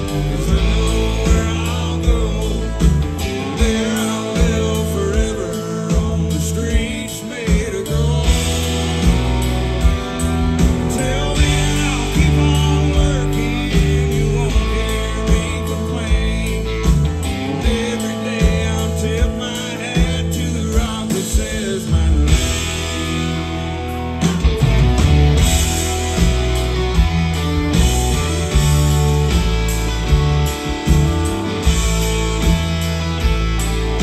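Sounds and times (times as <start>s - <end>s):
rock band playing live: 0.0s - 34.0s.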